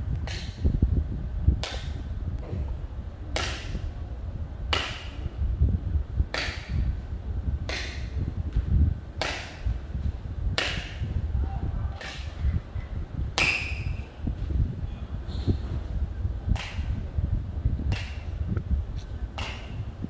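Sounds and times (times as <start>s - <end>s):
steady low rumble: 0.0s - 20.0s
sharp hand slaps echoing: 1.6s - 2.0s, 3.3s - 3.8s, 4.7s - 5.2s, 7.7s - 8.1s, 10.6s - 11.0s, 12.0s - 12.4s, 16.6s - 16.9s, 17.9s - 18.2s, 19.4s - 19.8s.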